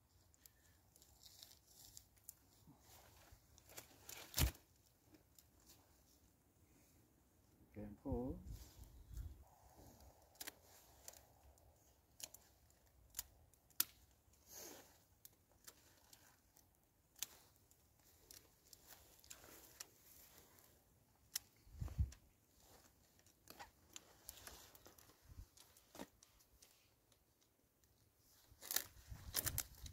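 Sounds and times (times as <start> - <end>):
willow rods clicking and snapping: 3.5 - 5.7, 10.0 - 27.9, 28.6 - 29.9.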